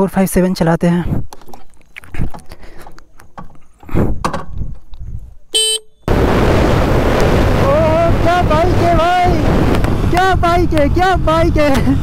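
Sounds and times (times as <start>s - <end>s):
vehicle horn toot: 5.6s - 6.1s
wind rush on microphone: 6.1s - 12.0s.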